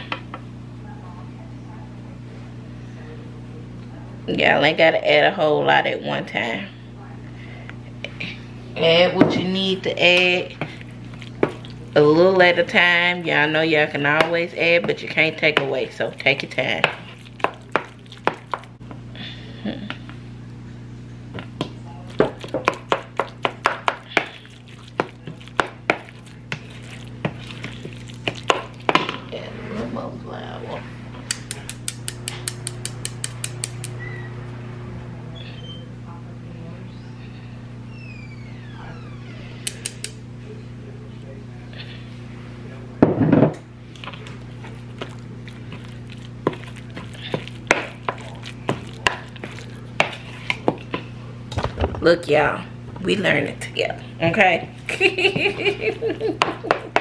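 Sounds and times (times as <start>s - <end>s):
steady low hum: 0.0s - 57.0s
spoon stirring thick mixture: 9.5s - 18.9s, 21.3s - 29.8s, 43.8s - 51.2s.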